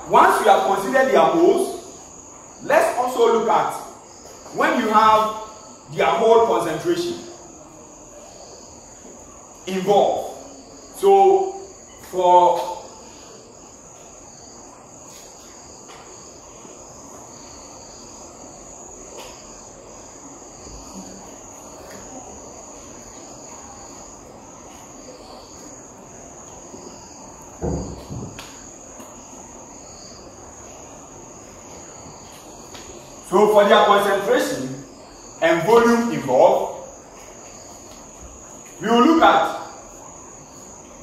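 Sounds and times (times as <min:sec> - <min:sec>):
crickets trilling: 0:00.0 - 0:41.0
loud thud: 0:27.6 - 0:28.5.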